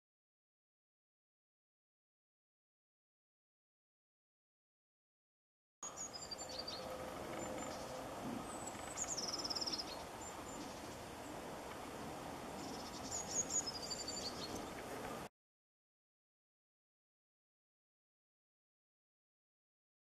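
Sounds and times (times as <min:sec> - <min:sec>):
songbirds singing: 0:05.8 - 0:15.3.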